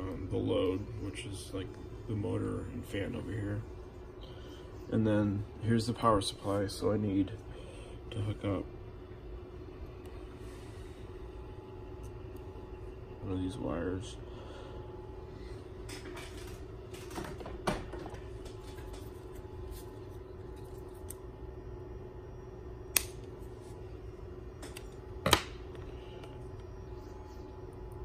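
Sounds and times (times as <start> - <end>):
steady low hum: 0.0 - 28.0
wire handling clicks: 20.6 - 21.2, 22.9 - 23.4
wire snapping: 22.9 - 23.3.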